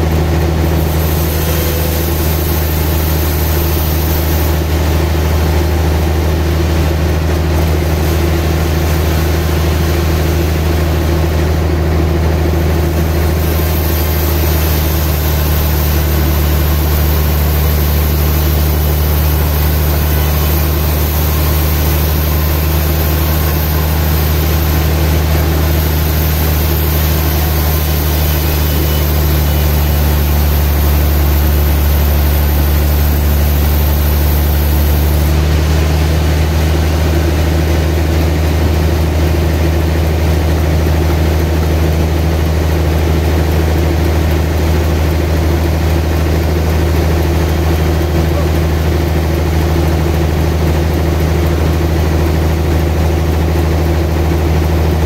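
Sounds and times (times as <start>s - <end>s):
band saw cutting log: 0.0s - 37.6s.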